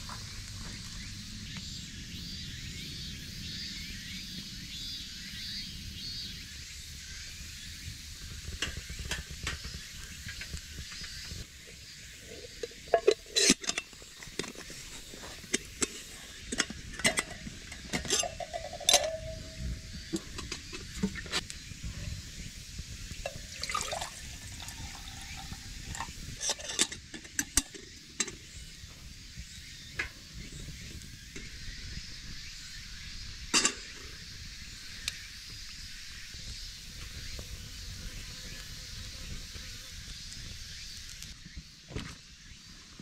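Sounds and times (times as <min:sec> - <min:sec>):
metal kettle clanking on grill: 0:12.3 - 0:21.3, 0:23.2 - 0:28.5, 0:33.6 - 0:34.0
kettle lid clinks and knocks: 0:12.6 - 0:14.7, 0:15.6 - 0:21.3, 0:23.3 - 0:28.4, 0:33.6 - 0:33.9
water filling kettle: 0:23.2 - 0:26.9.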